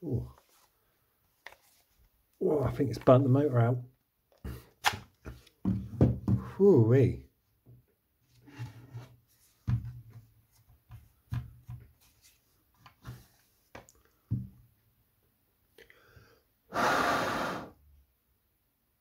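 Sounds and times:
heavy breath out: 0:15.8 - 0:17.8.

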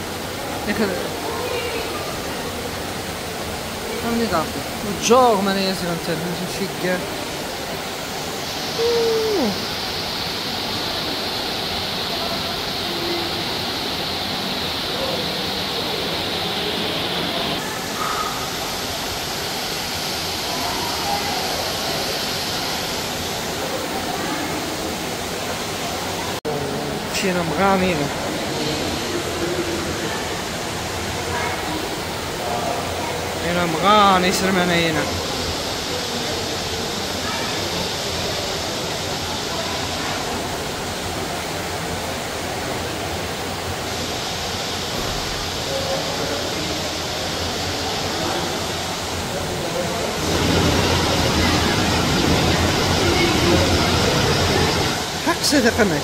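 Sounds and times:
flowing water rushing: 0:00.0 - 0:56.0
steady rushing ambience: 0:49.3 - 0:56.0.

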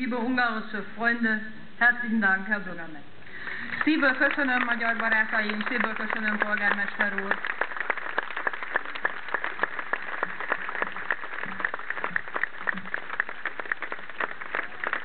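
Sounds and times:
crowd applauding: 0:03.5 - 0:15.0.

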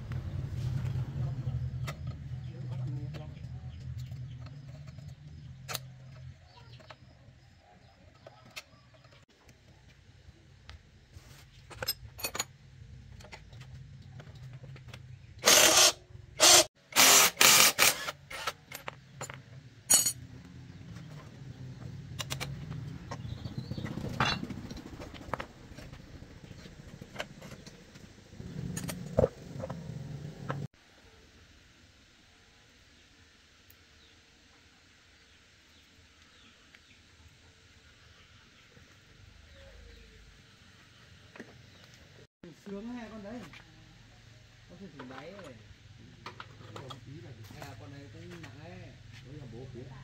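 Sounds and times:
metal hand tools clinking: 0:18.3 - 0:20.2.

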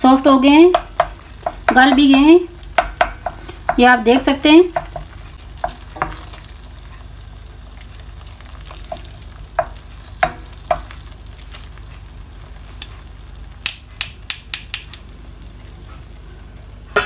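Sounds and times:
faint sizzle: 0:00.0 - 0:17.0
spoon stirring thick chutney: 0:00.4 - 0:07.1, 0:08.3 - 0:11.6
spoon knocking against pan: 0:00.6 - 0:06.4, 0:08.8 - 0:10.9.

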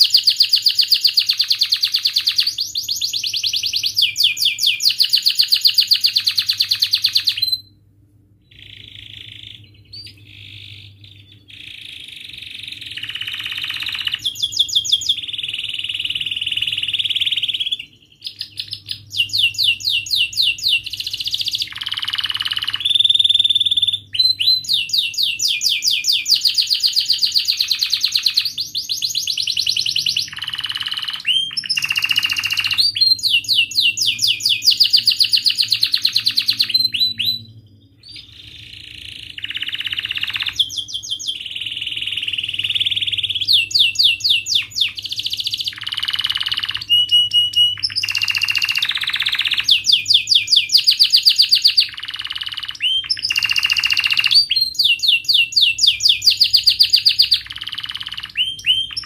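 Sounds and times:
canary singing trills and chirps: 0:00.0 - 0:07.8, 0:08.4 - 0:59.0.

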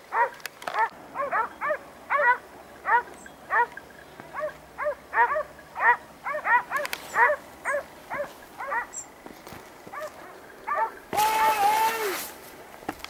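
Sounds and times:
dogs barking: 0:00.0 - 0:09.1, 0:09.8 - 0:11.1.

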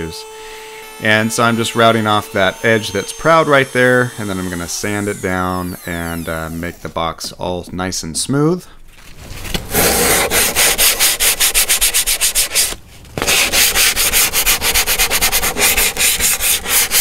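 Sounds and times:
sandpaper rubbing on wood: 0:09.7 - 0:17.0.

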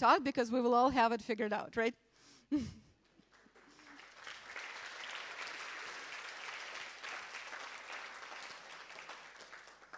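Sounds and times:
audience applauding: 0:03.2 - 0:09.9.

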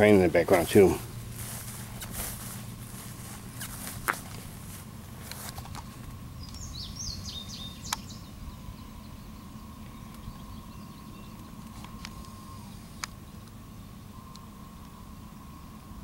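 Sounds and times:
distant train rumble: 0:00.0 - 0:16.0
bird chirping: 0:05.8 - 0:15.8
faint steady high tone: 0:06.2 - 0:16.0
sharp clicks: 0:07.9 - 0:08.1.

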